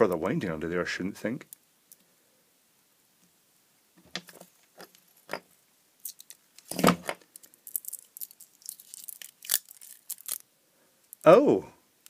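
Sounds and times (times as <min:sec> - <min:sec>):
tape peeling crackle: 0:06.0 - 0:10.5.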